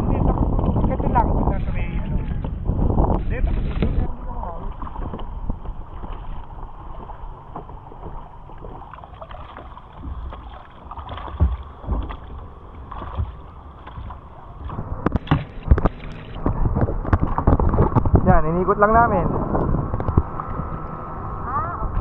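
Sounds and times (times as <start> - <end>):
kayak paddles splashing water: 3.4 - 18.3
paddle knocks: 4.6 - 18.2.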